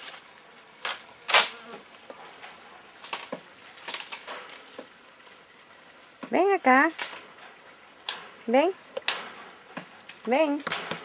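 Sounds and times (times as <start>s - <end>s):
high-pitched insect buzz: 0.0s - 4.2s
sharp clicks and rustles: 2.4s - 4.9s.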